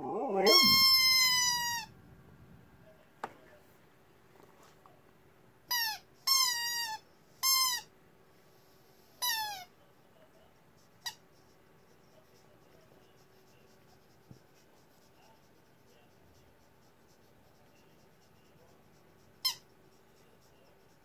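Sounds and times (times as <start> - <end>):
squeaky chicken toy squealing: 0.5 - 1.9, 5.7 - 7.9, 9.2 - 9.7.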